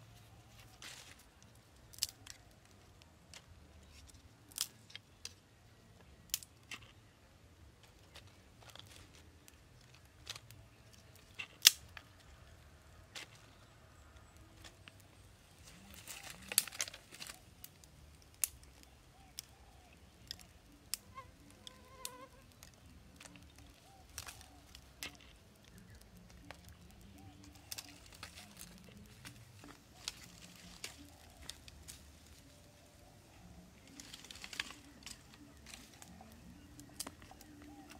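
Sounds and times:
small fire crackling: 0.0 - 37.9
sharp pops and snaps: 1.1 - 5.4, 8.9 - 12.3, 16.1 - 32.6.

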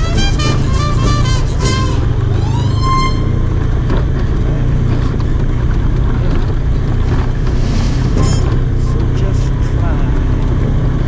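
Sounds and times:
vehicle engine running: 0.0 - 11.0
tyres on rocky dirt: 0.4 - 11.0
high-pitched tone: 2.3 - 3.6, 7.8 - 9.0.

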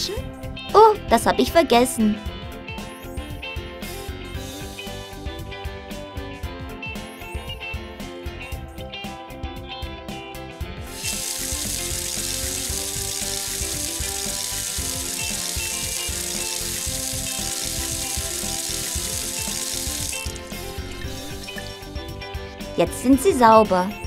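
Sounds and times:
light background music: 0.0 - 24.0
tap water running into sink: 10.9 - 21.8.

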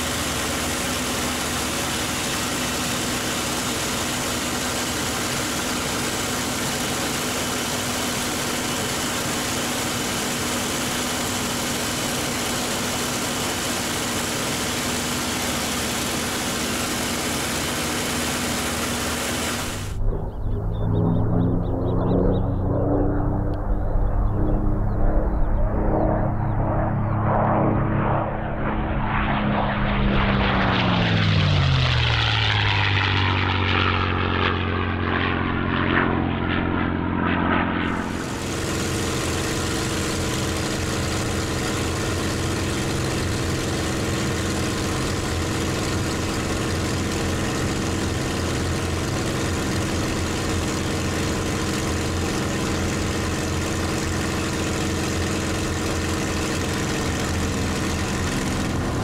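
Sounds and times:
aircraft engine running steadily: 0.0 - 59.0
propeller plane passing low: 0.0 - 59.0
loud wind rush: 19.3 - 27.2.

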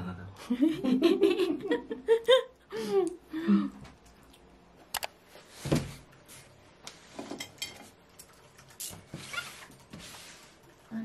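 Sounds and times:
tableware and cutlery clinking: 7.1 - 9.0.

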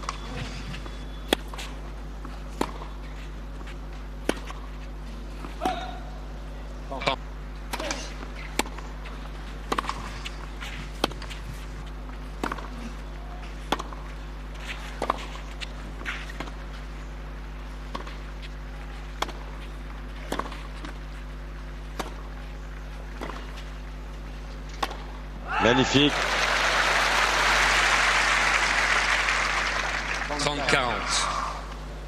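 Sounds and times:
steady low hum: 0.0 - 32.0
tennis ball hit by rackets: 1.2 - 1.8, 2.5 - 3.0, 4.2 - 4.6, 7.7 - 9.0, 9.6 - 11.6, 12.3 - 12.7, 13.4 - 16.6, 17.9 - 18.3, 19.0 - 19.6, 20.2 - 21.1, 21.9 - 22.4, 23.0 - 23.6, 24.7 - 25.2.

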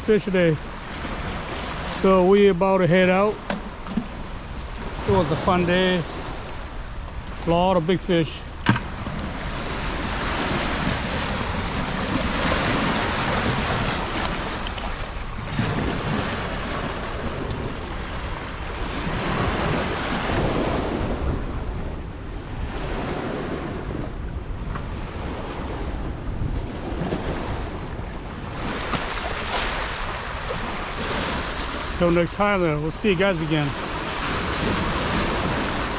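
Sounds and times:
wind buffeting microphone: 0.0 - 35.9
river water lapping on rocky shore: 28.5 - 35.9.

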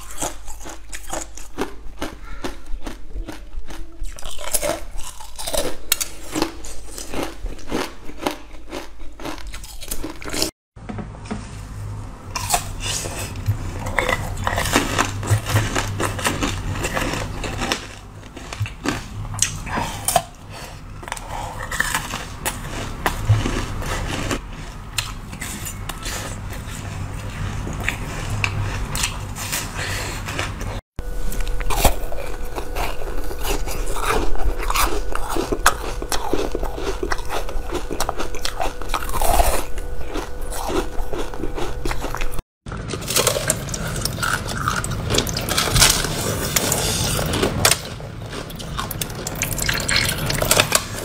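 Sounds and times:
chewing: 0.0 - 10.5, 12.3 - 51.0
ice crunching between teeth: 0.0 - 10.5, 12.3 - 51.0
low steady hum: 10.8 - 51.0.

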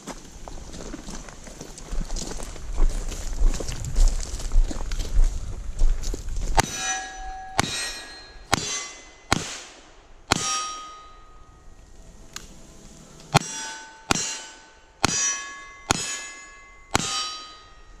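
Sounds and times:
steel plate ringing: 6.6 - 9.4, 10.3 - 11.8, 13.3 - 18.0.

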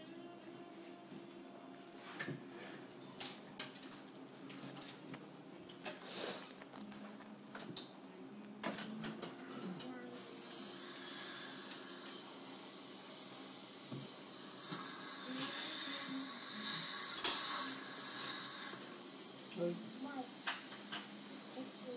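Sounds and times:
dental equipment hissing: 6.0 - 6.6, 9.8 - 21.9.

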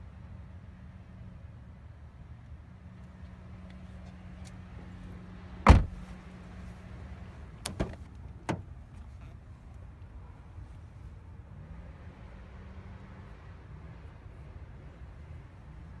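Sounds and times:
car door shutting: 5.6 - 6.0, 7.6 - 8.7.

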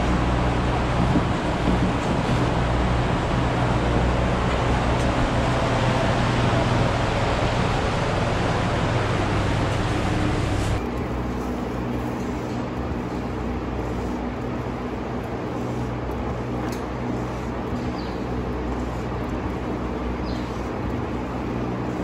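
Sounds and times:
rushing noise: 0.0 - 11.4
steady mechanical hum: 0.0 - 22.0.

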